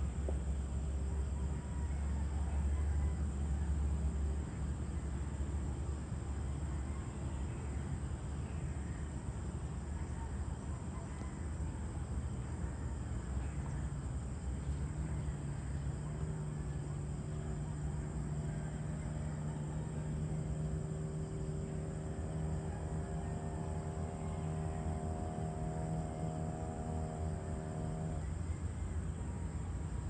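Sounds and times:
distant traffic rumble: 0.0 - 30.0
engine humming: 13.6 - 30.0.

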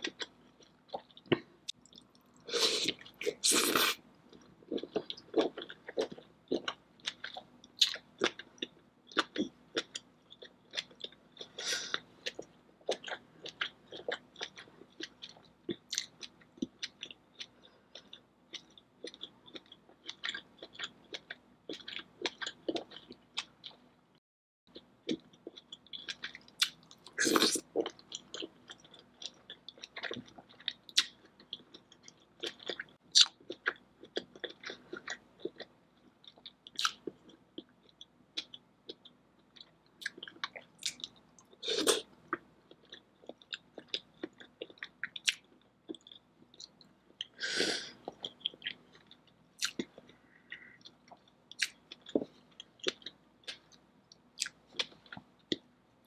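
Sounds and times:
wet chewing and lip smacks: 48.1 - 55.7.

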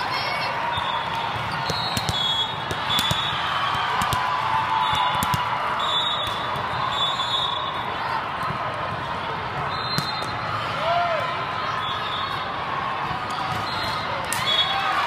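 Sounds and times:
volleyballs smacking: 1.4 - 5.5.

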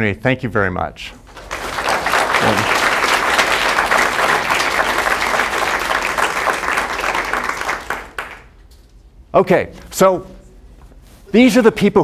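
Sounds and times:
audience applauding: 1.3 - 8.6.

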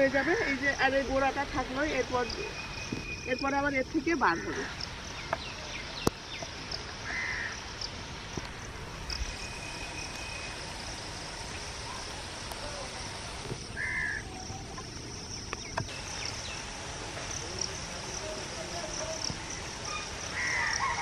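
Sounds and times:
high insect chorus: 0.0 - 21.0
bird calling: 1.8 - 7.6, 13.6 - 16.7, 19.0 - 21.0.

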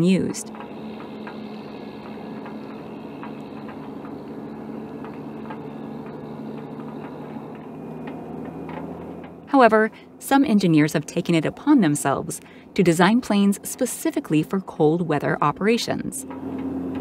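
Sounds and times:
engine humming steadily: 0.0 - 17.0.

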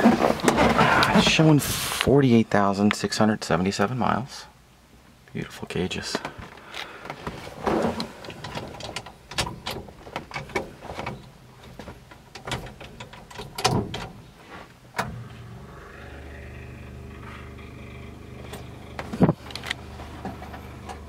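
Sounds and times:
knocks and clunks in truck cab: 11.8 - 14.2
engine idling: 15.1 - 21.0.

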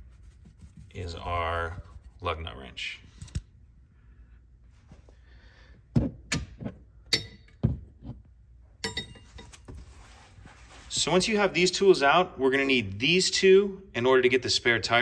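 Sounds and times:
metal tools clinking: 8.8 - 9.6.

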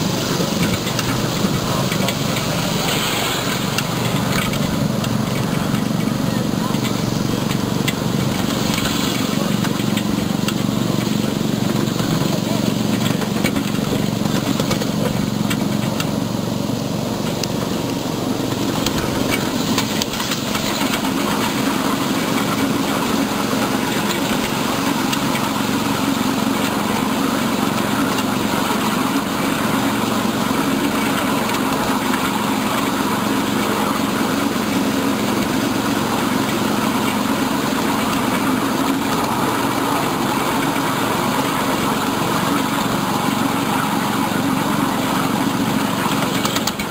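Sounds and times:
miniature train mechanical drone: 0.0 - 46.9
wheels rolling over rails: 0.0 - 46.9.

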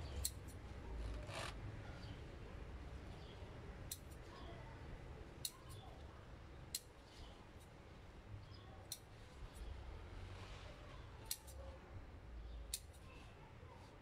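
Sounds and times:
scissors snipping: 3.9 - 4.3, 5.4 - 5.8, 11.2 - 11.7, 12.7 - 13.1.

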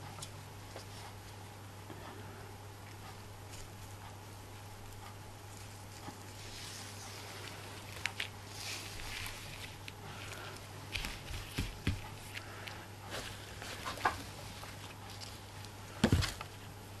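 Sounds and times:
ribbon scraps rustling: 4.8 - 16.7.

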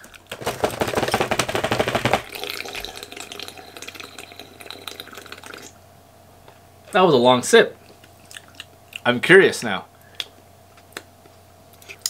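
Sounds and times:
soda fizzing: 1.1 - 5.8.

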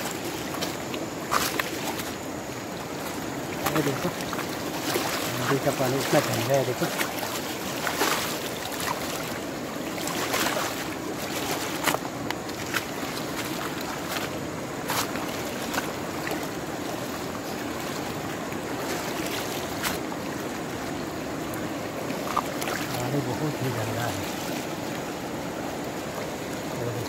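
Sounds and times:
river water running: 0.0 - 27.0.

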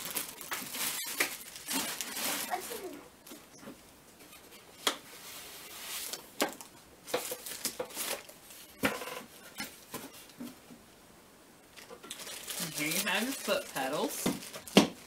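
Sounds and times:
plastic bag rustling: 0.0 - 3.5, 5.2 - 10.3, 11.7 - 15.0.

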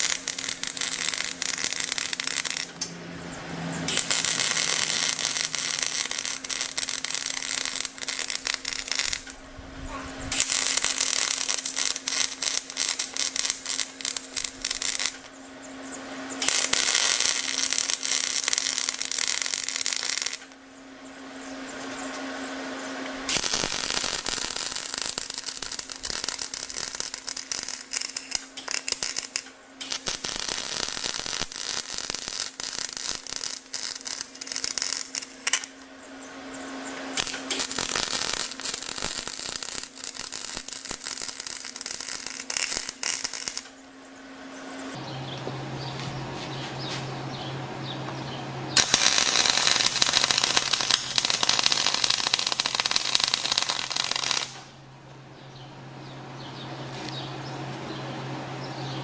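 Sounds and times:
electric arc welding crackle: 0.0 - 15.4, 16.2 - 20.6, 23.0 - 35.9, 36.8 - 43.8, 48.8 - 54.7.

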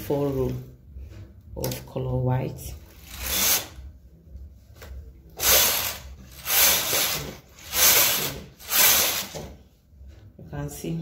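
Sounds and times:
knitting machine carriage whoosh: 3.0 - 3.8, 5.4 - 9.5.

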